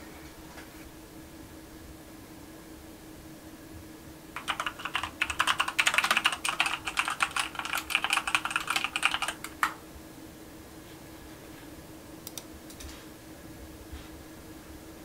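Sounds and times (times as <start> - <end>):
computer keyboard typing: 4.4 - 9.8.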